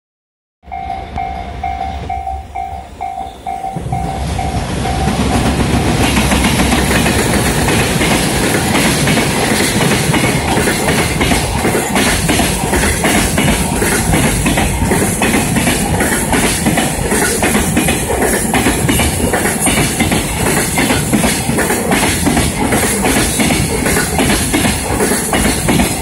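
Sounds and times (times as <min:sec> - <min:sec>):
train rumble and wheel clatter: 0:00.6 - 0:26.0
level crossing bell ringing: 0:00.7 - 0:05.4.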